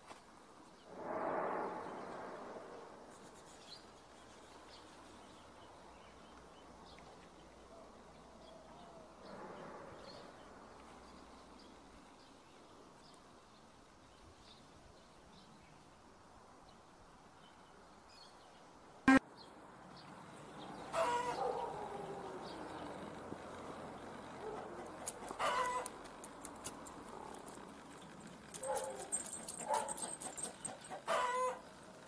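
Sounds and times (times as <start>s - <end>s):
broad rushing swell: 0.9s - 3.2s.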